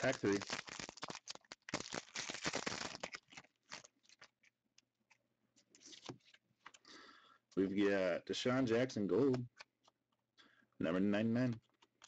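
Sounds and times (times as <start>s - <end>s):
wrapper tearing and crinkling: 0.0s - 4.5s
clicks and rustles of handling: 3.0s - 6.9s, 9.2s - 10.3s, 11.4s - 12.0s.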